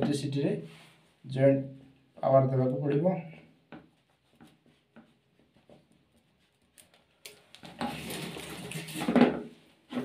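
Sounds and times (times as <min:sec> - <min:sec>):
plastic parts scraping on concrete: 0:07.3 - 0:10.0.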